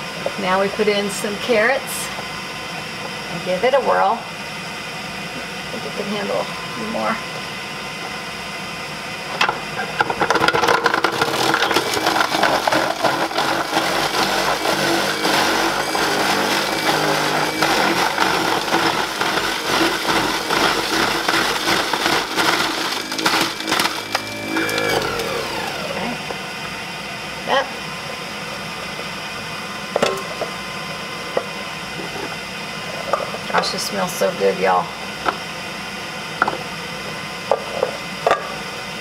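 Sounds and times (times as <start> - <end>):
juicer grinding carrots: 9.1 - 30.5
juicer motor running: 9.2 - 30.2.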